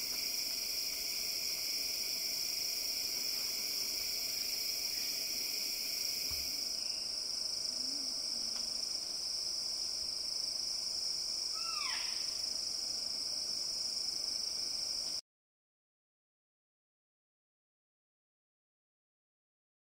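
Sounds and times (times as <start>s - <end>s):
high-pitched insects droning: 0.0s - 15.2s.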